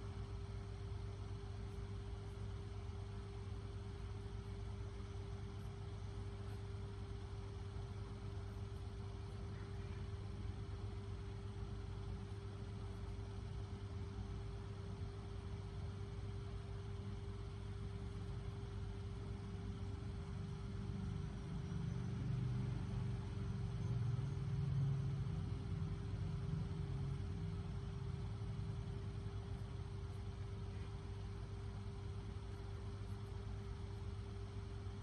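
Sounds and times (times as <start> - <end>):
motor rumble and hum: 0.0 - 35.0.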